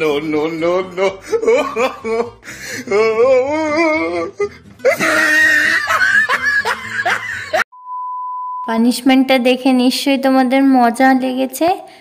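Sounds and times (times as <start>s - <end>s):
woman crying out: 2.9s - 6.4s
woman laughing breathily: 4.8s - 7.6s.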